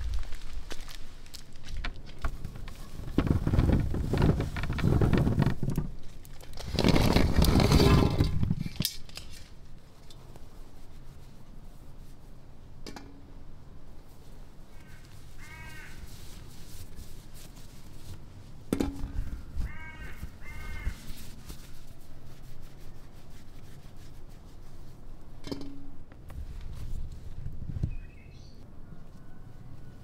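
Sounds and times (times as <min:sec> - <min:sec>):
crow cawing: 0:14.8 - 0:16.0, 0:19.2 - 0:21.0.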